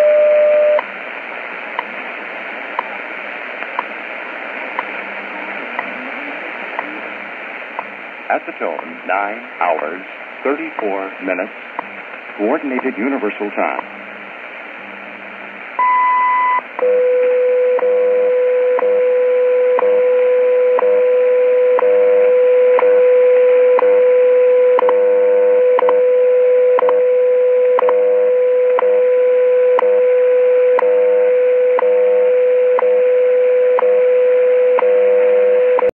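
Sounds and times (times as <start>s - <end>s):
shortwave static hiss: 0.0s - 35.9s
radio time signal beep: 15.8s - 17.1s.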